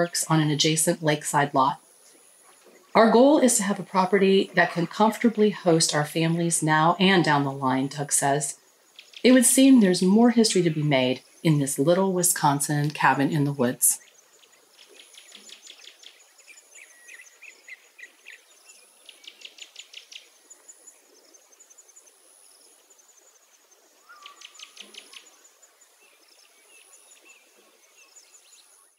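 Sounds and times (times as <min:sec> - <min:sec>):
bird chirping trills: 0:00.0 - 0:28.9.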